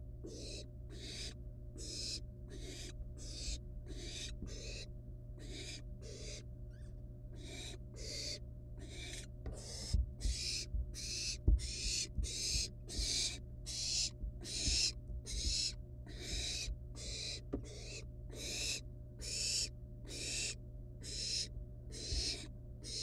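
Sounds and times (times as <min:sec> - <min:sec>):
steady low hum: 0:00.0 - 0:23.0
owl nestlings hissing calls: 0:00.2 - 0:23.0
soft low thumps: 0:09.5 - 0:17.8.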